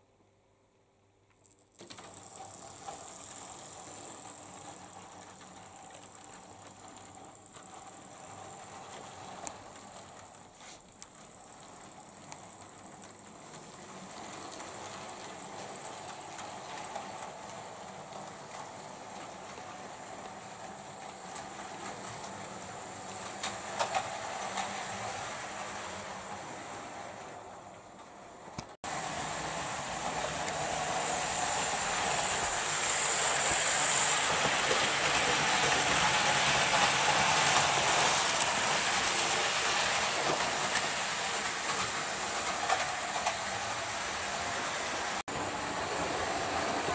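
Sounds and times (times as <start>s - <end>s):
wheel clicks on track: 1.7s - 25.2s
model train motor whirring: 1.7s - 27.3s, 28.6s - 45.2s.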